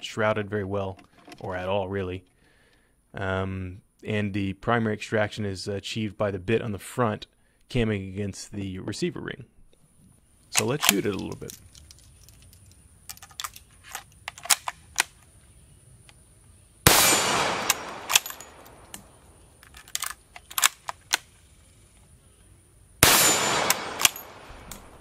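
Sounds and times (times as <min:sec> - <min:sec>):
rifle bolt metallic clicks: 0:10.5 - 0:15.3, 0:17.0 - 0:21.3, 0:23.0 - 0:25.0
rifle shots with echo: 0:16.8 - 0:19.2, 0:23.0 - 0:25.0.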